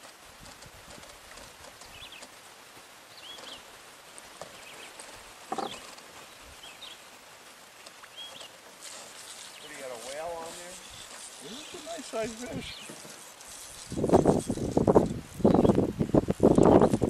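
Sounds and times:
faint steady hiss: 0.0 - 17.0
small birds chirping: 1.8 - 2.3, 3.1 - 3.7, 4.4 - 7.2, 8.0 - 14.8, 15.4 - 15.9, 16.5 - 17.0.

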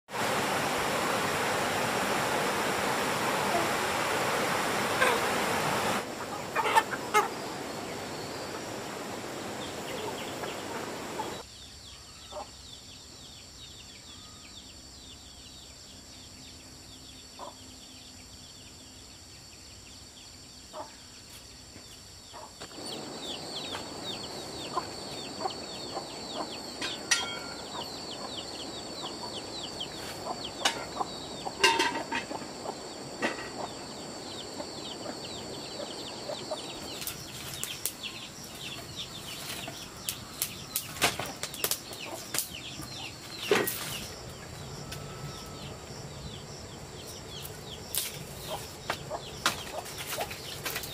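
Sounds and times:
chickens clucking: 4.8 - 8.8, 9.6 - 11.4, 22.3 - 37.7, 41.0 - 43.9, 48.3 - 50.9.

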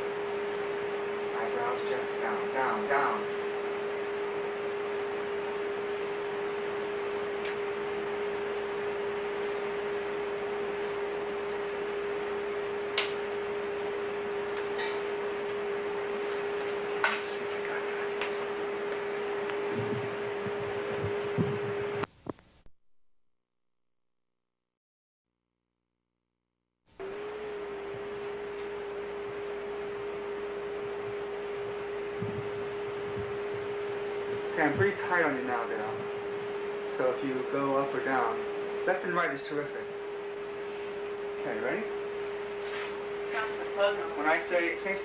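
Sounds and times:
steady electrical hum: 0.0 - 22.6, 27.0 - 45.0
tape hiss: 0.0 - 22.7.

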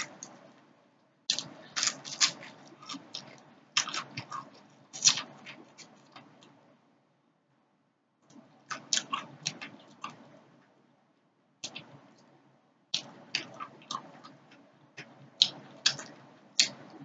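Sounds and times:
chewing crispy fried fish: 1.3 - 6.6, 8.3 - 10.3, 13.0 - 17.0.

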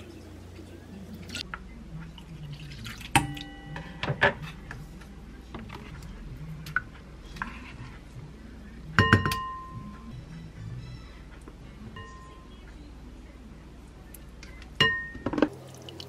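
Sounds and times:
wooden spoon stirring: 7.3 - 8.1
ringing metal bowl clinks: 14.8 - 15.3.

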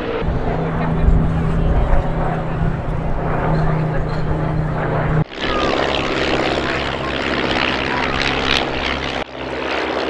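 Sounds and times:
biplane engine droning past: 0.0 - 10.0.

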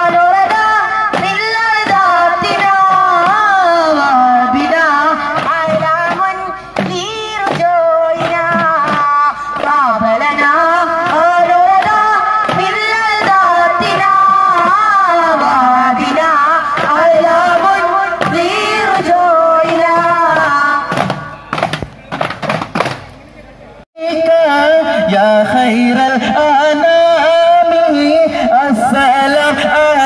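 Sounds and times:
frame drum strikes: 0.0 - 3.6, 4.6 - 14.9, 16.0 - 23.1.

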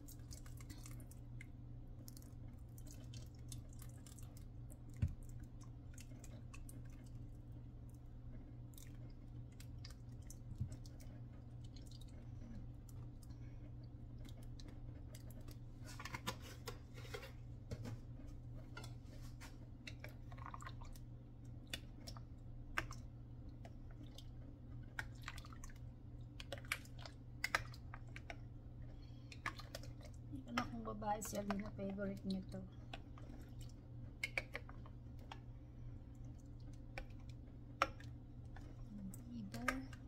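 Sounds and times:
porridge popping and clicking: 0.0 - 40.0
steady low hum: 0.0 - 40.0.

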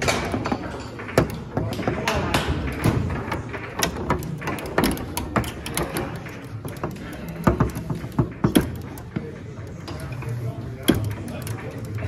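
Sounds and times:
foosball rods knocking: 0.0 - 9.2.

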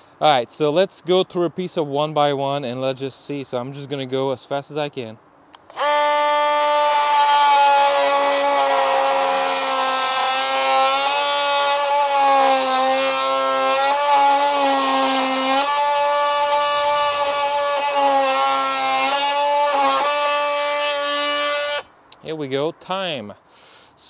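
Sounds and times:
oscillating tool cutting wood: 5.6 - 21.9.

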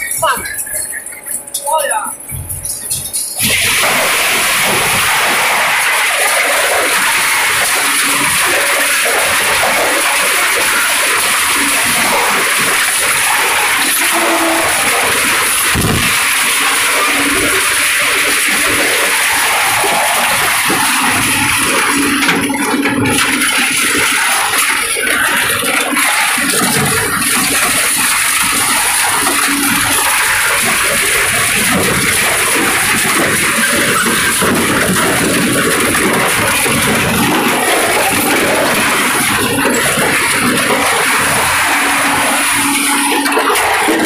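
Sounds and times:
metal being torn and scraped: 2.3 - 44.0.

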